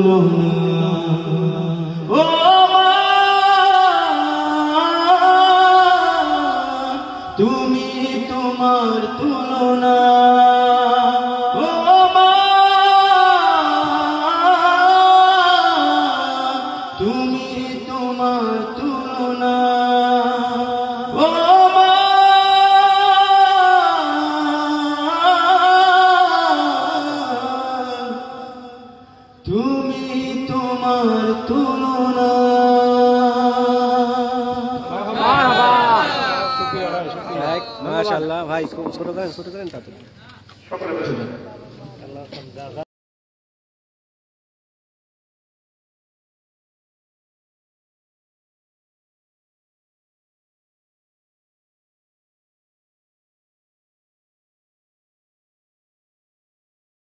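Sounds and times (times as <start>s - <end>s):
person singing devotional song: 0.0s - 37.0s.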